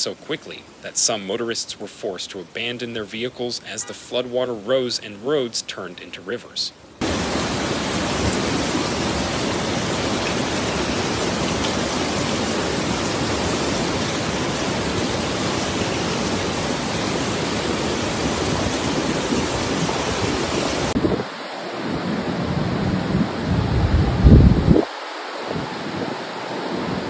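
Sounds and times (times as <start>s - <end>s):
floodwater rushing: 0.0s - 27.0s
low rumbling: 22.4s - 24.9s.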